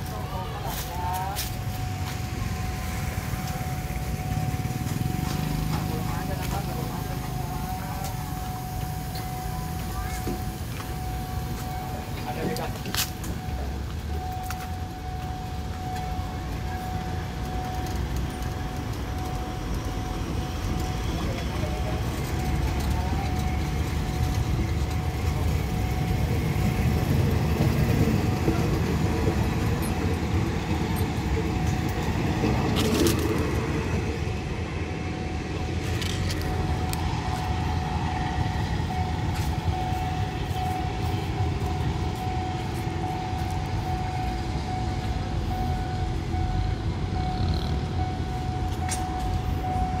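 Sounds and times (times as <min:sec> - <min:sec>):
continuous hum: 0:00.0 - 0:50.0
train rumbling: 0:00.0 - 0:50.0.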